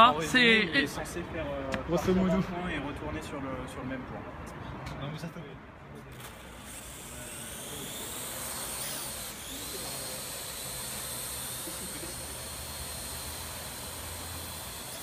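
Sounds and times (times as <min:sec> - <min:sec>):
drone propellers whining: 0:06.4 - 0:15.0.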